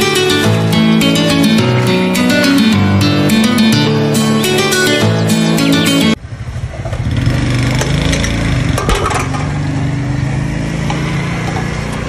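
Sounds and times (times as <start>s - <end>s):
small motorcycle engine running: 6.2s - 12.0s.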